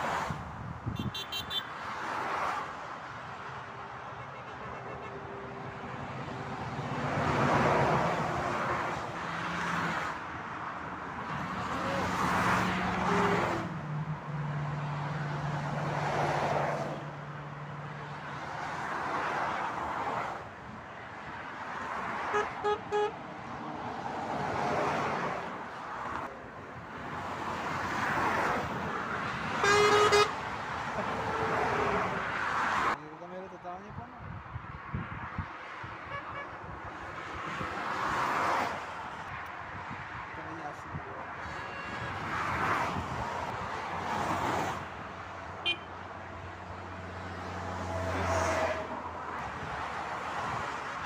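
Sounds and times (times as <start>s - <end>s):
motorway traffic passing: 0.0s - 51.0s
loud horn blast: 0.9s - 1.7s, 22.3s - 23.2s, 29.6s - 30.4s, 36.1s - 36.6s, 41.4s - 42.2s, 45.6s - 45.9s
short horn toots: 0.9s - 1.7s, 29.6s - 30.4s, 41.4s - 42.1s.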